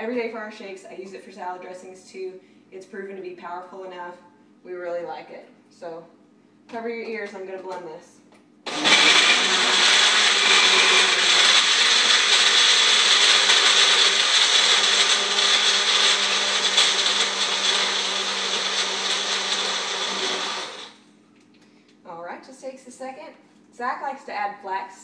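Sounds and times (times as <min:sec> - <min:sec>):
blender running: 0:08.7 - 0:21.0.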